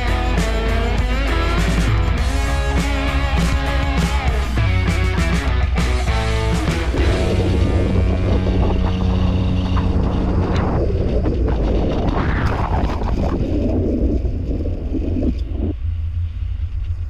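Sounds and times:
wind rushing over microphone: 6.1 - 17.0.

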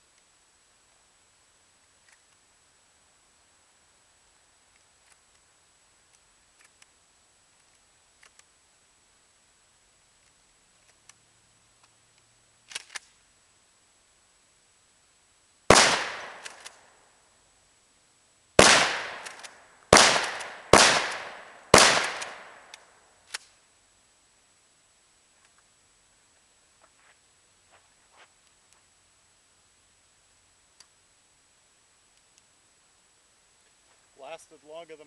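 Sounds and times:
shotgun shots echoing: 15.7 - 16.7, 18.6 - 22.7.

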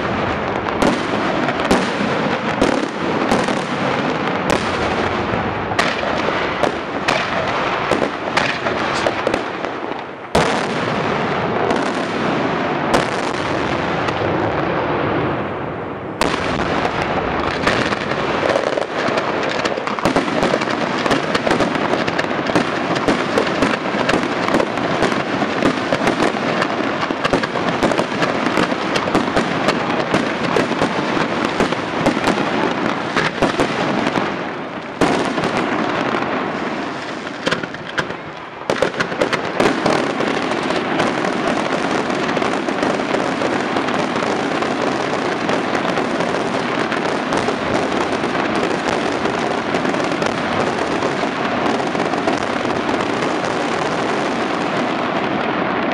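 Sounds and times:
fireworks bangs and crackling: 0.0 - 55.9
sharp firework crack: 0.0 - 55.9.

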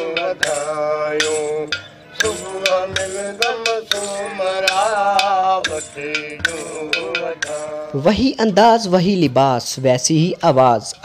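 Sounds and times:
hand percussion strikes: 0.0 - 8.3
man singing: 0.0 - 9.4.

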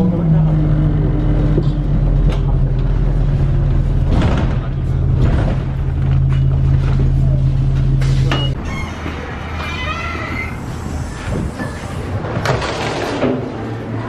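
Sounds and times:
bus engine hum: 0.0 - 12.5
bus body knocks and rattles: 3.7 - 6.1.

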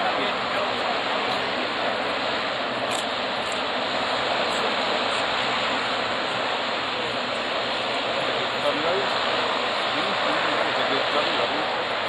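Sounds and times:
jet engines rushing: 0.0 - 12.0.

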